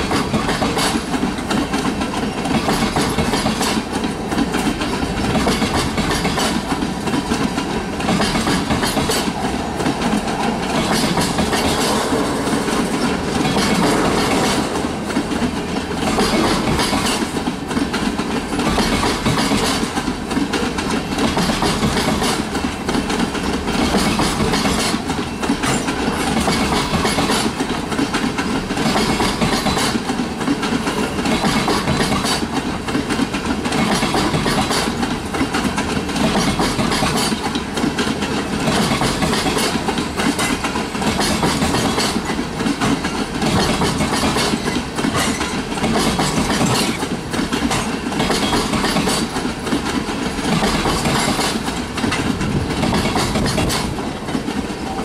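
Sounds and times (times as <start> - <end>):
train wheels rumbling on rail: 0.0 - 55.0
wheels clicking over rail joints: 0.0 - 55.0.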